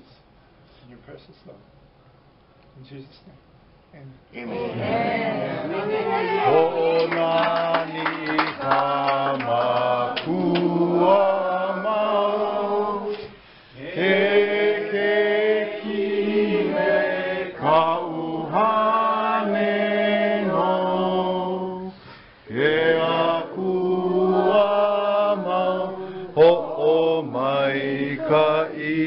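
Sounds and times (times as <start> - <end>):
group of people singing: 4.4 - 29.0.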